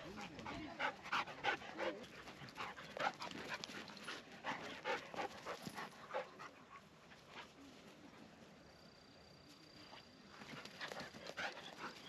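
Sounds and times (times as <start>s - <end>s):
dog panting: 0.1s - 6.6s, 10.6s - 12.0s.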